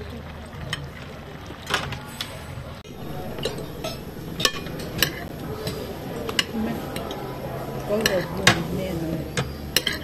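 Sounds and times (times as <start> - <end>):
metal utensils clinking: 2.9 - 10.0.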